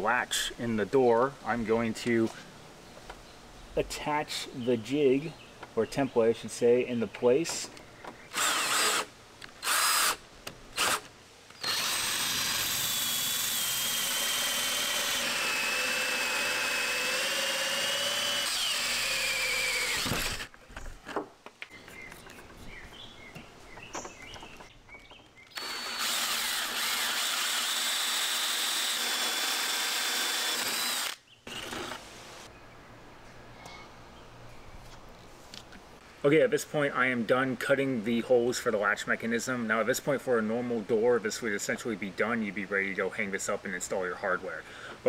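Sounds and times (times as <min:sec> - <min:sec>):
cordless drill driving screws: 0:08.3 - 0:10.2, 0:10.8 - 0:20.5, 0:25.6 - 0:32.0
hole saw whining through wood: 0:08.3 - 0:10.2, 0:10.8 - 0:20.5, 0:25.6 - 0:32.0.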